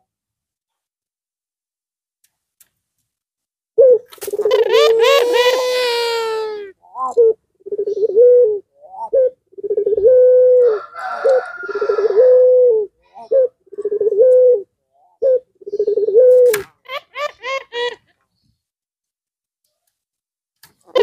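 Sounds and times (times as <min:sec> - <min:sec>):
dove cooing: 0:03.8 - 0:18.0.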